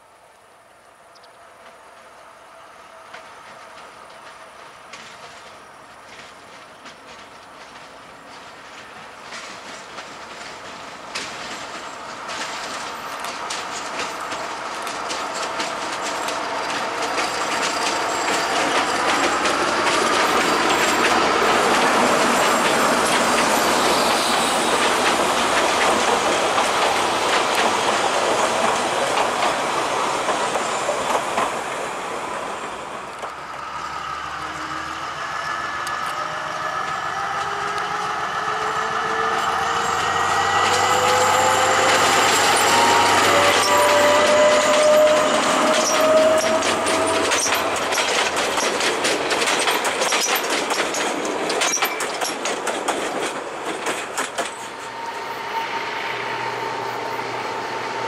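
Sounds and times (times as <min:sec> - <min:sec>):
diesel locomotive engine droning: 0:00.4 - 0:58.0
train wheels clattering: 0:03.0 - 0:56.2
wheel squeal: 0:16.1 - 0:24.7, 0:39.1 - 0:48.7.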